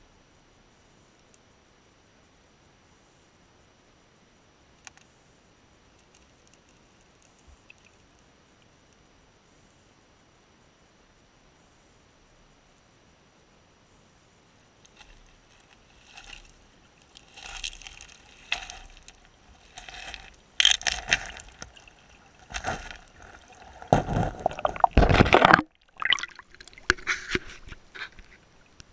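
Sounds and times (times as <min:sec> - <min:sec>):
water sloshing and splashing: 0:15.0 - 0:28.6.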